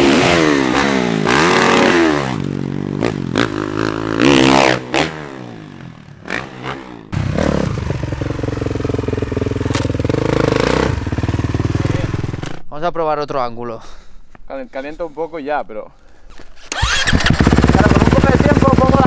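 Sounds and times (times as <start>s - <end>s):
motocross bike engine revving: 0.0s - 12.6s, 16.6s - 19.0s.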